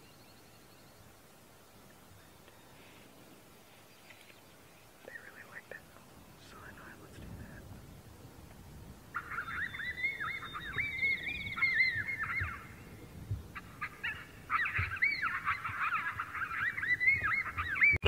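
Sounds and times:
electronic yelping whines: 9.2s - 12.5s.

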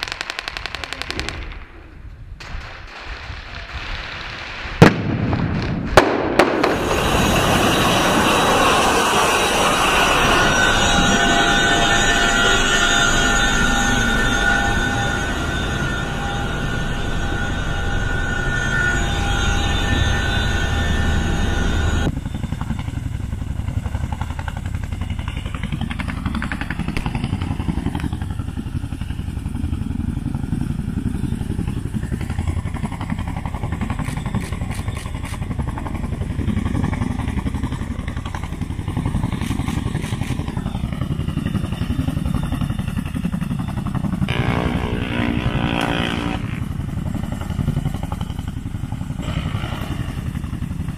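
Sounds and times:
rush of noise: 0.0s - 22.4s, 44.3s - 50.9s
helicopter rotors hovering: 6.0s - 50.9s
helicopter cabin engine drone: 6.7s - 50.9s.

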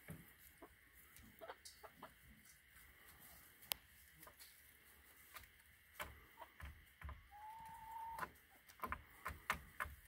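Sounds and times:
hens pecking and scratching: 0.0s - 10.0s
high hen call: 7.3s - 8.3s.

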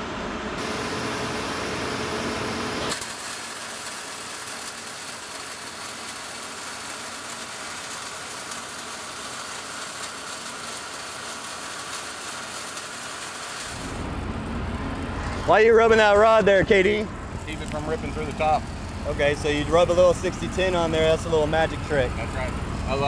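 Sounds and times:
welding arc hiss and crackle: 0.5s - 23.0s
low machinery rumble: 13.7s - 23.0s.

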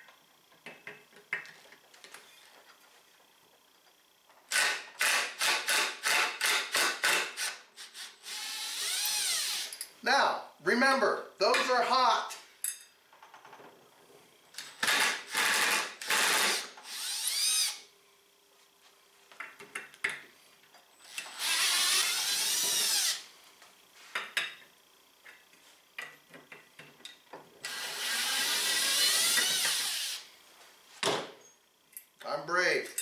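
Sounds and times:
cordless drill whining: 7.4s - 9.8s, 14.6s - 17.8s, 21.0s - 23.2s, 27.6s - 30.3s.

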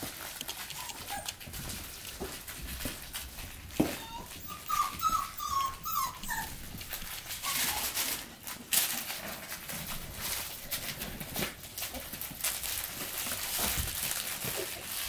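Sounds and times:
puppies scuffling on blankets: 0.0s - 15.0s
puppy whining: 0.2s - 8.5s.

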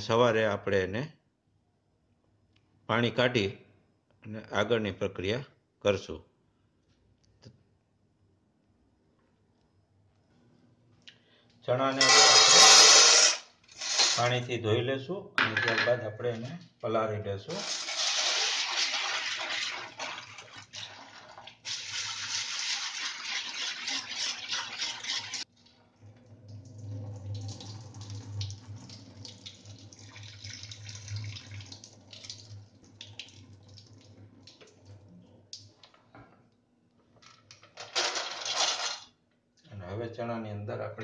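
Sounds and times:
chickpeas rubbed in water: 17.5s - 20.6s, 21.6s - 25.4s
water poured into steel sink: 17.5s - 35.0s
low steady hum: 25.6s - 37.6s.

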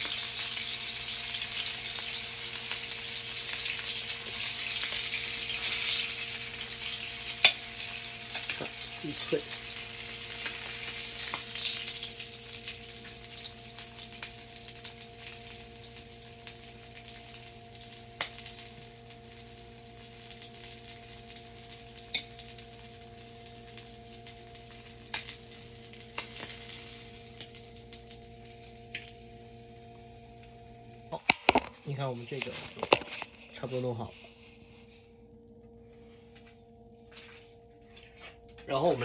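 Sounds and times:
oil sizzling in a frying pan: 0.0s - 31.2s.

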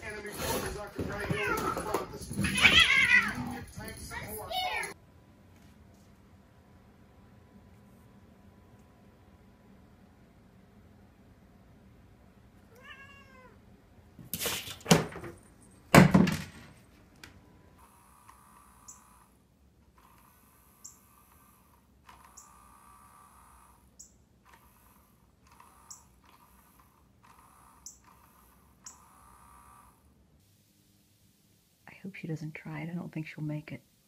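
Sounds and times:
cat meowing: 2.4s - 3.6s, 12.7s - 13.6s
toy motor whirring: 17.8s - 30.0s.

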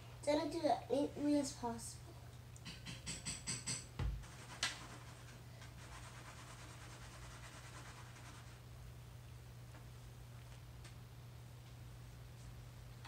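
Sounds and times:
low steady hum: 0.0s - 13.0s
dull thump: 4.0s - 4.2s.

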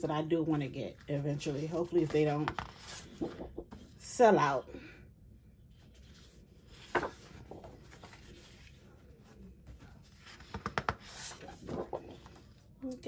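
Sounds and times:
paper rustling: 1.0s - 4.0s, 5.8s - 12.6s
paper crackle: 9.7s - 12.5s.

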